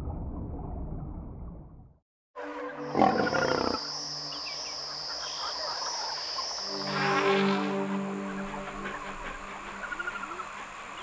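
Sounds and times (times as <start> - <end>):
animal growl: 2.9 - 3.9
high-pitched whine: 3.3 - 11.0.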